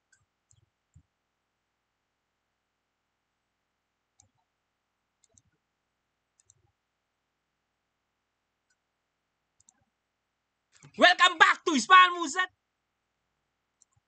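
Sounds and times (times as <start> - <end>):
faint short clicks: 6.4 - 6.6.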